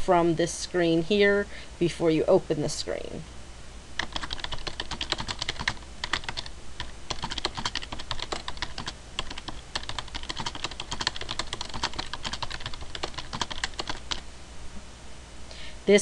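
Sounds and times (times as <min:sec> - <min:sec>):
computer keyboard typing: 0:04.0 - 0:14.2.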